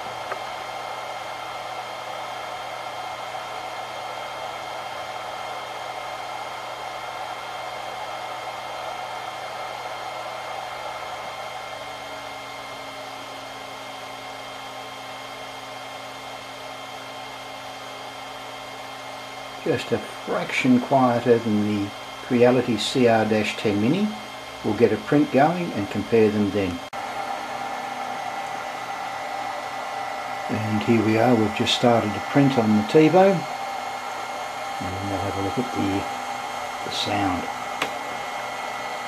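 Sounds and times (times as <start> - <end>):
cooling fans whirring: 0.0 - 39.0
whining tones: 18.7 - 39.0.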